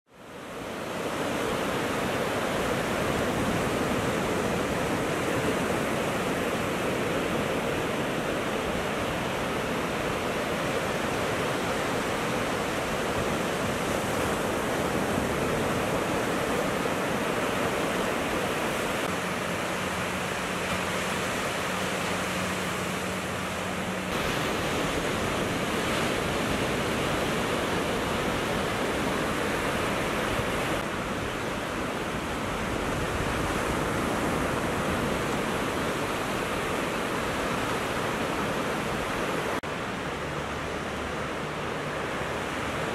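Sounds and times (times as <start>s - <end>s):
ocean surf breaking: 0.3s - 42.9s.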